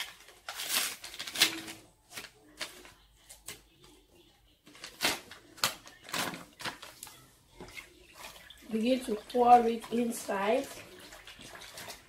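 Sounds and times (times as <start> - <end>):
paper bag crinkling: 0.0 - 3.0.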